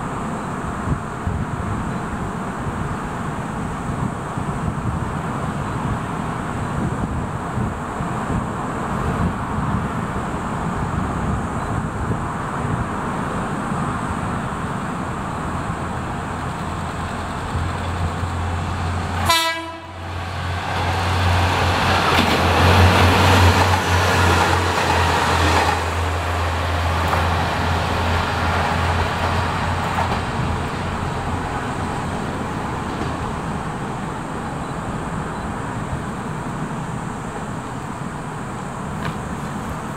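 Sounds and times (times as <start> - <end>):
diesel railcar engine droning: 0.0 - 39.9
wheel and rail noise: 0.0 - 39.9
train horn toot: 19.2 - 20.1.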